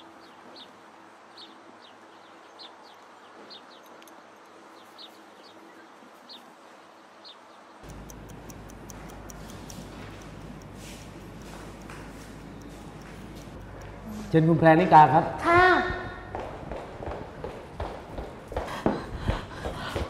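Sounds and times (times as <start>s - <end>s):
bird chirping: 7.2s - 13.9s
wall clock ticking: 7.8s - 14.0s.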